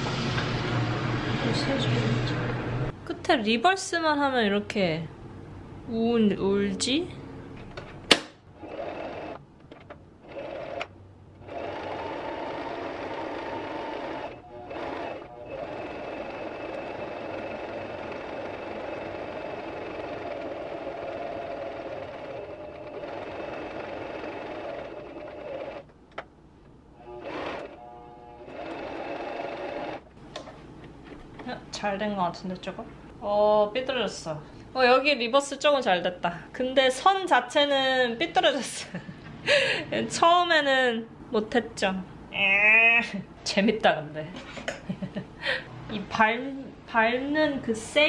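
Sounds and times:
electric sewing machine stitching: 8.6s - 9.4s, 10.2s - 25.9s, 27.0s - 30.1s.

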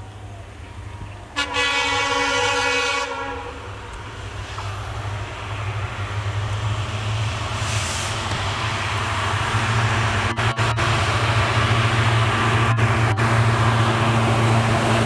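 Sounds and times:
locomotive engine drone: 0.0s - 15.0s
train rumbling: 0.0s - 15.0s
locomotive horn blast: 1.3s - 3.8s.

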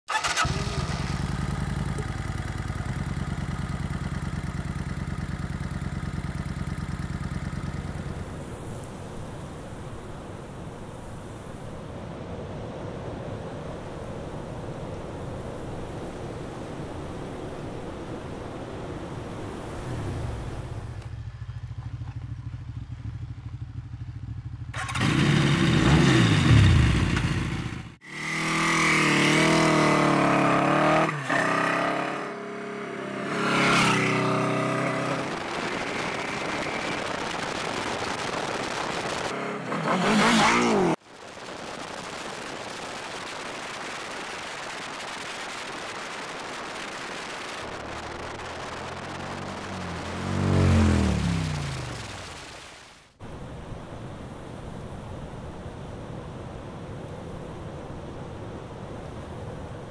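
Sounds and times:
motorcycle engine idling and revving: 0.0s - 10.0s, 18.5s - 41.0s, 47.8s - 52.3s.

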